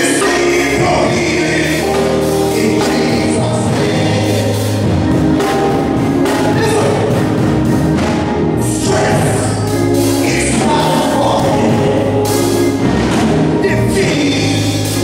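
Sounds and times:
man singing into microphone: 0:00.0 - 0:04.8, 0:06.4 - 0:07.2, 0:08.6 - 0:12.5, 0:13.6 - 0:15.0
amplified gospel music: 0:00.0 - 0:15.0
choir voices: 0:00.0 - 0:15.0.

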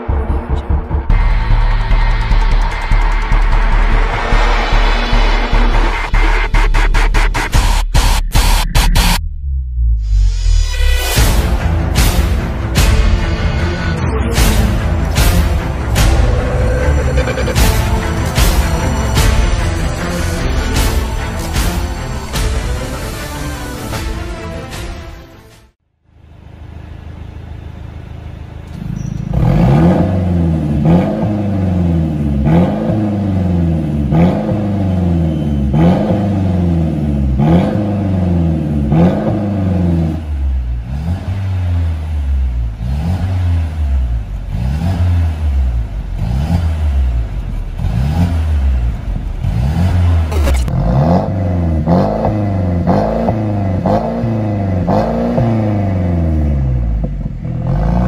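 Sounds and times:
car engine revving: 0:11.2 - 0:22.8, 0:26.2 - 0:58.0.

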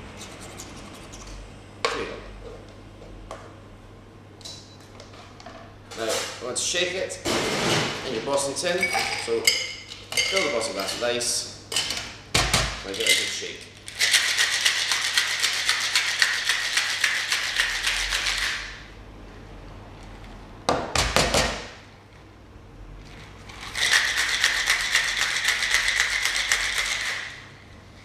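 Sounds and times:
ice rattling in shaker: 0:13.9 - 0:18.6, 0:23.4 - 0:27.4.

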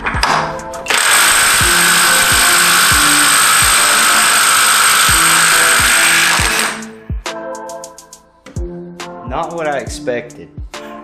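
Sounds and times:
impact wrench hammering: 0:00.1 - 0:06.9.

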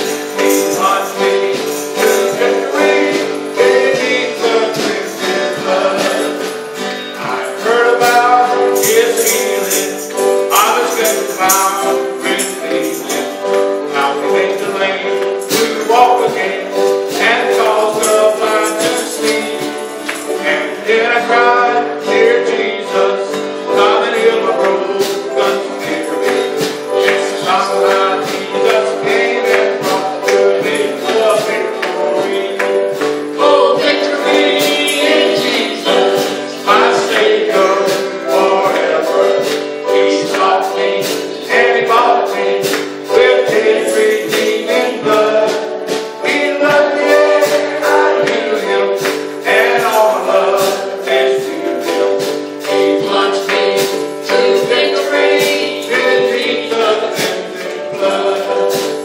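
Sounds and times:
sharp percussion hits: 0:00.0 - 0:21.4, 0:23.3 - 0:59.0
music accompaniment: 0:00.0 - 0:59.0
women singing a gospel hymn: 0:00.1 - 0:06.6, 0:23.8 - 0:59.0.

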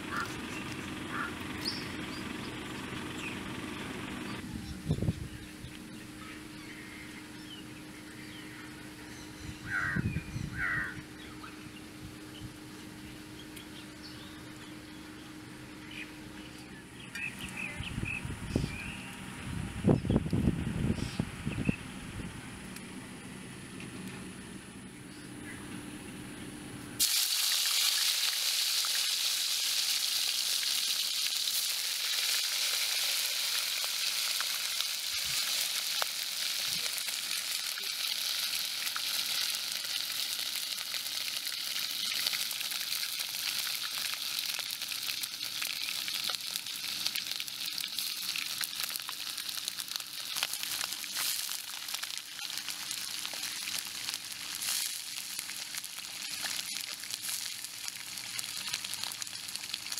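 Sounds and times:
fish deep-frying in hot oil: 0:27.0 - 0:59.9.

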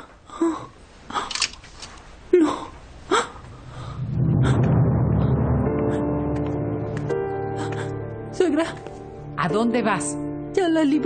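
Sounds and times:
music: 0:04.2 - 0:11.0.

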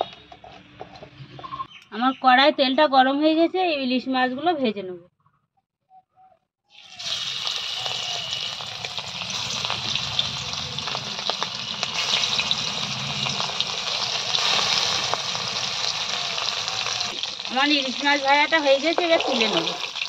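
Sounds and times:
fish frying in oil: 0:06.7 - 0:20.0.

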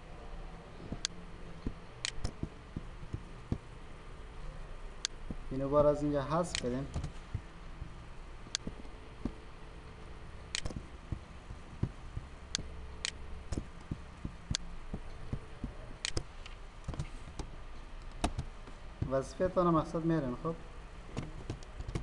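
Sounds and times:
low steady hum: 0:00.0 - 0:22.0
keyboard and mouse clicks: 0:00.9 - 0:03.6, 0:06.5 - 0:07.4, 0:08.5 - 0:09.4, 0:10.5 - 0:18.5, 0:21.2 - 0:22.0.

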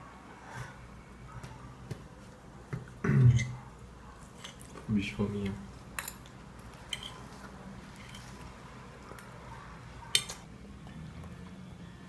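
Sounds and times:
fork clinking on ceramic plate: 0:06.9 - 0:07.2.

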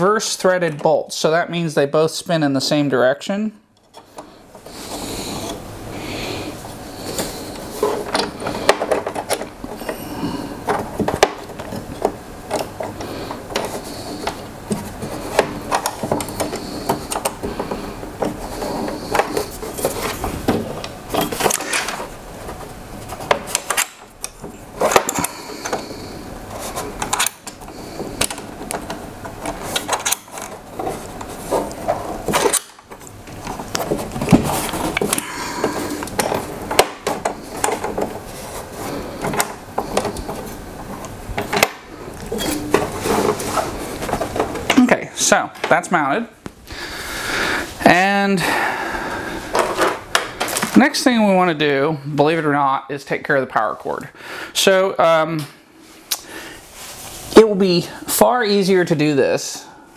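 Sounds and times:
metal parts clicking and scraping: 0:10.6 - 0:22.2, 0:23.0 - 0:44.9.

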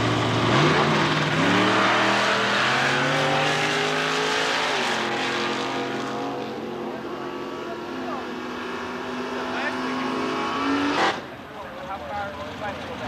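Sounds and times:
racing car engines at full throttle: 0:00.0 - 0:13.0.

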